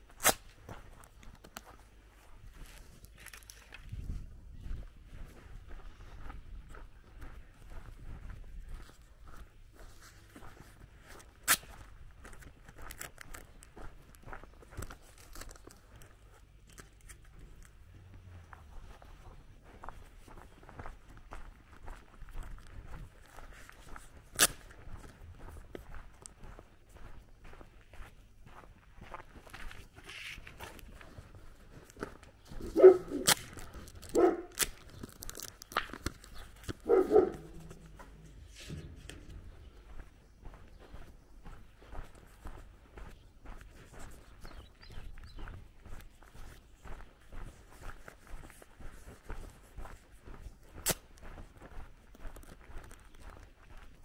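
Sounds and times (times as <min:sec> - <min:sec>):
footsteps on gravel: 0:00.0 - 0:54.0
dog barking: 0:32.6 - 0:33.3, 0:34.1 - 0:34.6, 0:36.8 - 0:37.8.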